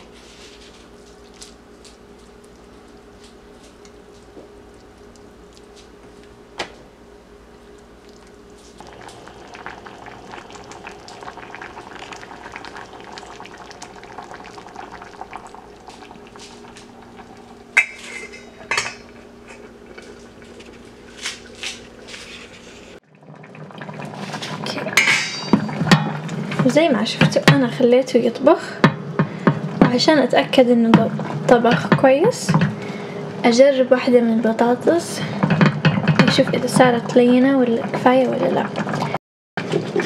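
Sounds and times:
soup bubbling in a pot: 0.9s - 6.6s, 7.3s - 33.4s, 35.3s - 40.0s.

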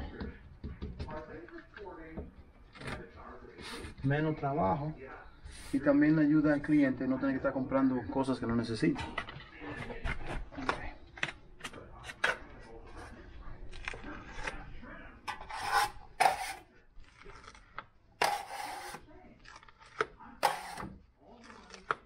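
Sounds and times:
hand tool scraping hard surface: 15.3s - 16.7s, 18.2s - 19.0s, 20.4s - 21.0s.

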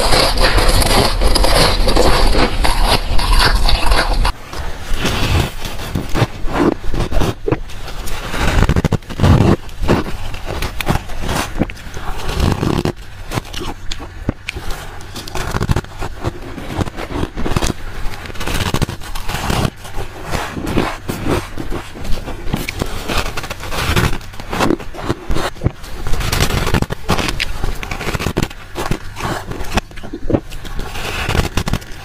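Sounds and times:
chewing crunchy frost: 0.0s - 32.0s.

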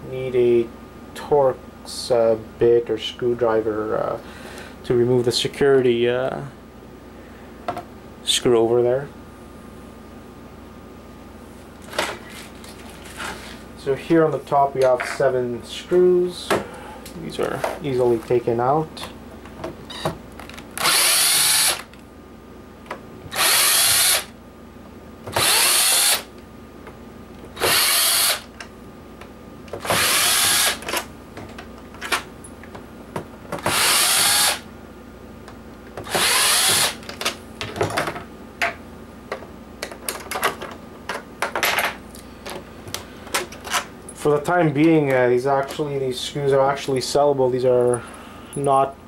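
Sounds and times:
power drill whirring: 20.8s - 21.9s, 23.3s - 24.3s, 25.3s - 26.3s, 27.6s - 28.5s, 29.8s - 30.8s, 33.7s - 34.6s, 36.0s - 37.0s
screws and plastic clicking: 29.8s - 30.9s, 36.0s - 37.0s.

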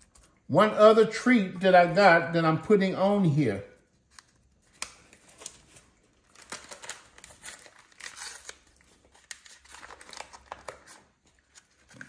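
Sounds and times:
disposable gloves crinkling: 3.8s - 12.0s.

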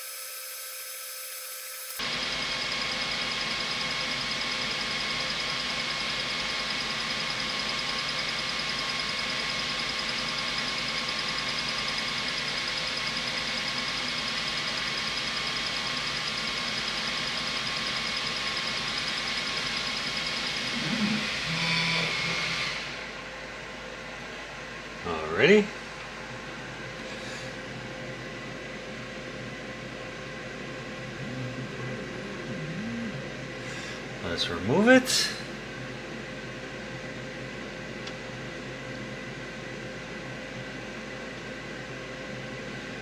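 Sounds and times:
laser engraver whirring: 0.0s - 23.8s.

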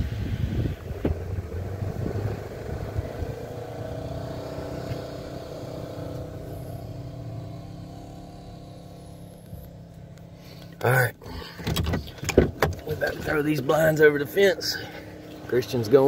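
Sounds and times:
car engine running at low speed: 0.0s - 16.0s.

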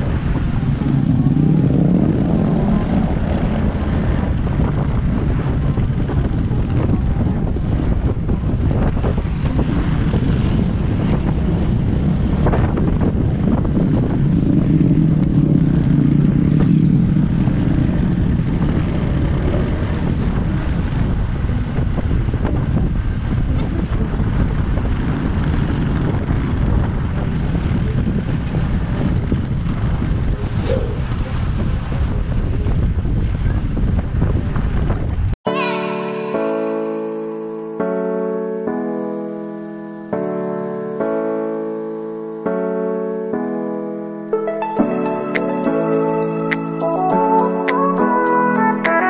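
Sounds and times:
motorcycle engine running: 0.0s - 35.3s
wind rushing over microphone: 0.0s - 35.4s.

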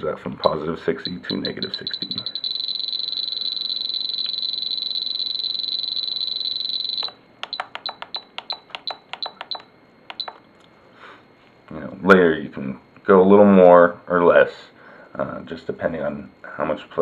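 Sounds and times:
radio transmitter beeping: 0.4s - 10.4s.

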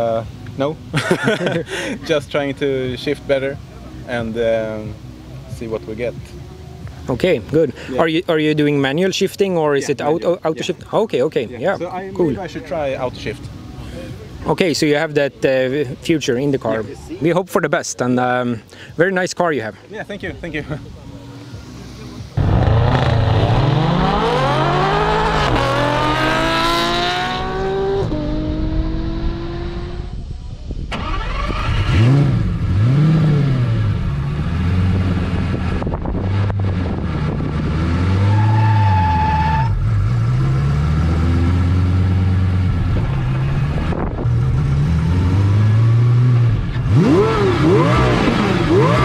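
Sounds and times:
car engine revving: 22.4s - 30.2s, 30.9s - 49.0s.

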